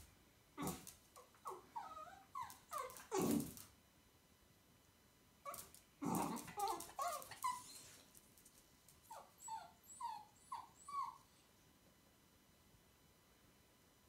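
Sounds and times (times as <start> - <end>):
small dog yipping and whimpering: 1.4 - 3.4, 5.5 - 8.0, 9.1 - 11.4.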